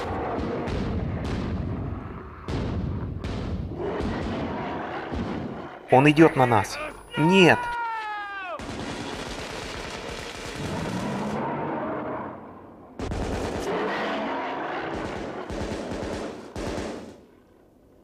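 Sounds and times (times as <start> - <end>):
rifles firing rapidly: 8.6 - 11.2, 13.0 - 13.9, 14.8 - 17.2.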